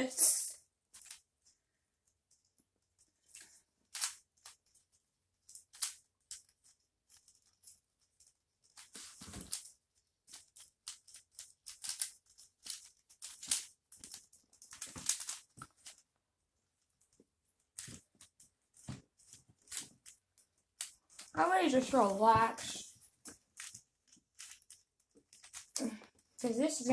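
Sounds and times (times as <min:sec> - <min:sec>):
twist cube clicking: 0:03.2 - 0:16.1, 0:17.0 - 0:21.3, 0:23.1 - 0:26.5.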